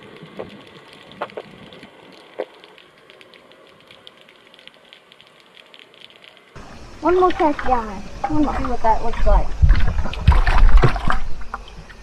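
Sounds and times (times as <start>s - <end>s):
underwater crackle of clicks: 0.0s - 6.6s.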